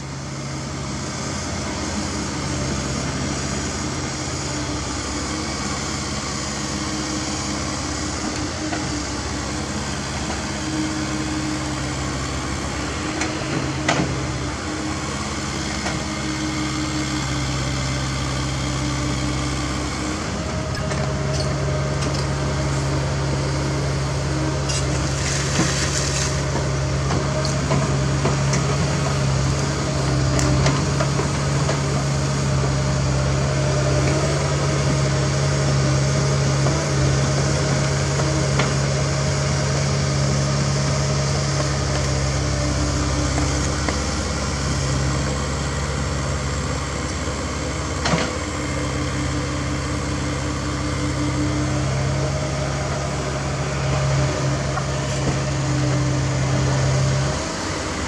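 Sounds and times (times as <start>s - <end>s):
excavator diesel engine running: 0.0s - 58.0s.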